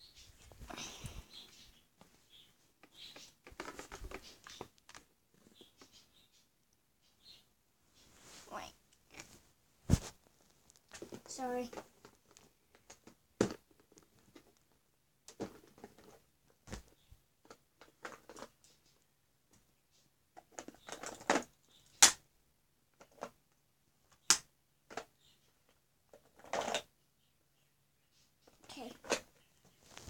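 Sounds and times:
crinkling and rustling: 0.2s - 6.1s, 7.9s - 19.6s, 20.4s - 21.8s, 24.9s - 26.9s, 28.4s - 30.0s.

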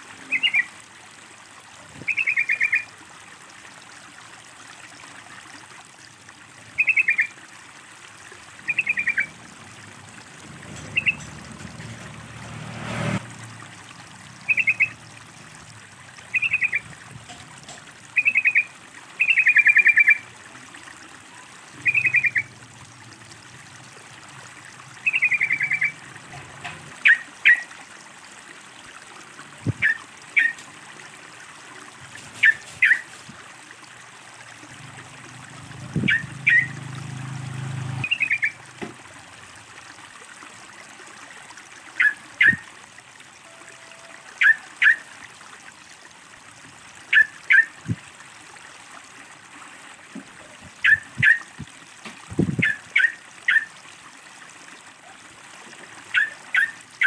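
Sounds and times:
water trickling: 0.0s - 57.0s
bird double chirps: 10.9s - 11.2s, 14.5s - 14.9s.

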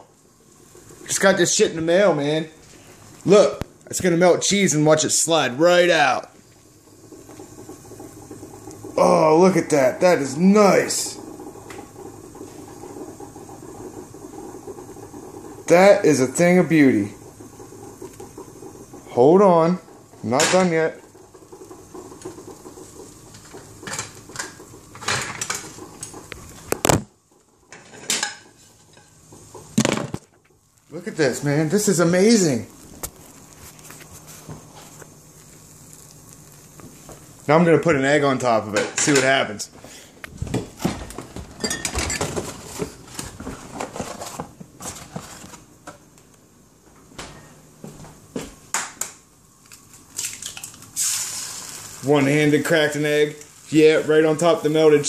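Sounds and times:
kitchen utensils clattering: 23.8s - 26.1s, 27.7s - 29.2s, 40.8s - 45.4s.

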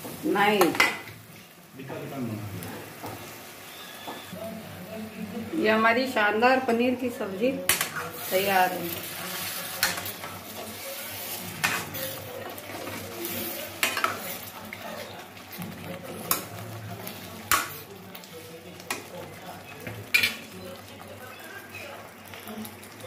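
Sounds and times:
steady sizzle: 0.0s - 23.0s
spoon clanking on metal pan: 20.1s - 20.4s.

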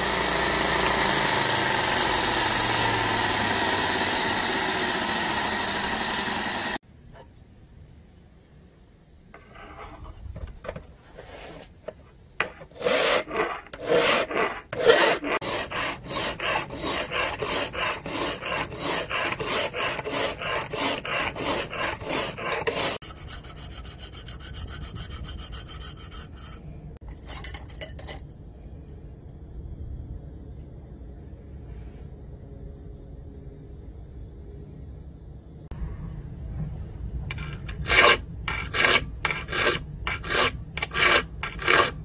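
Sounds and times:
hand file rasping on steel: 12.4s - 26.6s, 37.3s - 42.0s.

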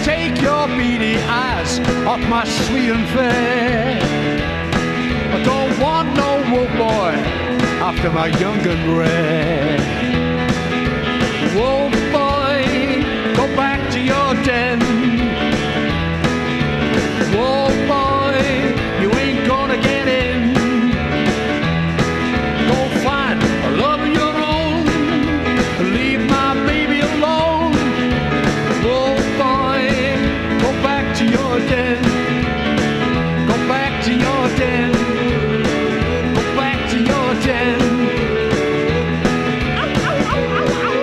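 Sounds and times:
bass and drums: 0.0s - 41.0s
lead guitar line bending pitch: 38.8s - 41.0s.

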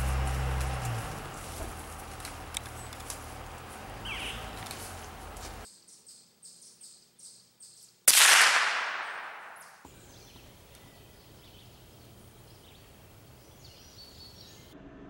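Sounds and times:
gunshot: 8.1s - 9.8s.

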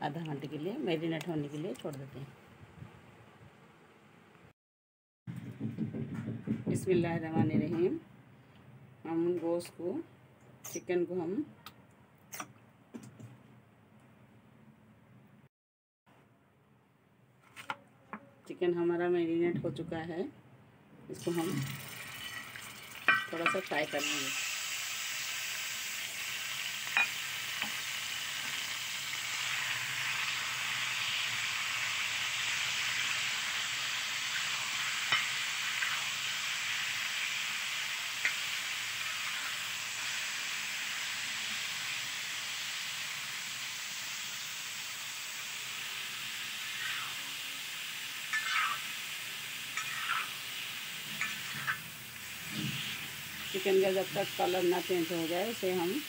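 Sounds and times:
chicken sizzling in hot oil: 21.2s - 56.0s
metal spatula tapping and scraping pan: 23.1s - 23.8s, 48.3s - 48.8s, 49.8s - 50.3s, 51.2s - 51.8s.

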